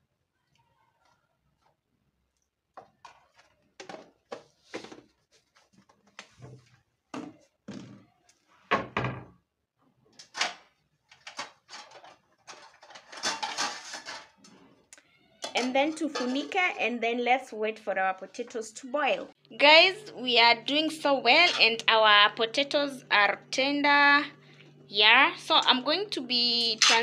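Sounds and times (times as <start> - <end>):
kitchen things clattering: 10.2 - 14.7, 15.4 - 16.8, 21.2 - 21.8, 26.5 - 27.0.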